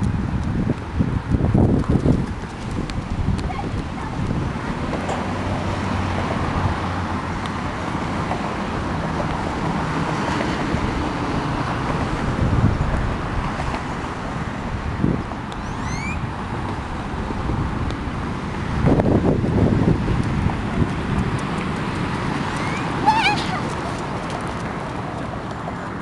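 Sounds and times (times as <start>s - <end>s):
wind rumbling on microphone: 0.0s - 26.0s.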